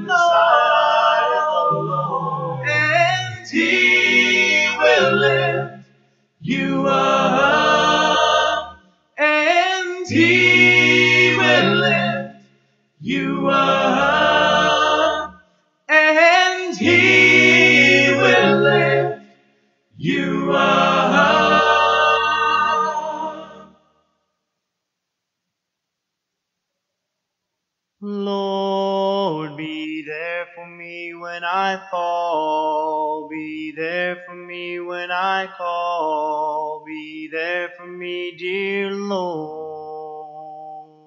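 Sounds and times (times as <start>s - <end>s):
a cappella group singing in harmony: 0.0s - 23.8s, 28.4s - 41.0s
singers breathing: 5.8s - 6.3s.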